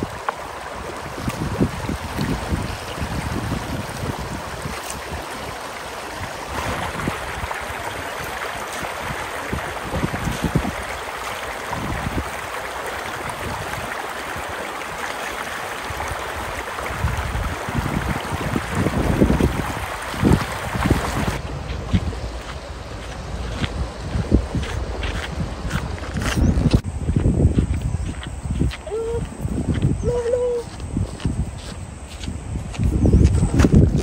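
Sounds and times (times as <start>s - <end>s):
river rushing over stones: 0.0s - 23.4s.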